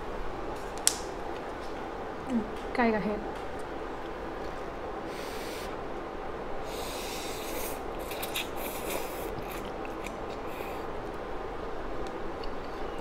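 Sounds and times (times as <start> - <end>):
person slurping noodles: 6.7 - 10.8.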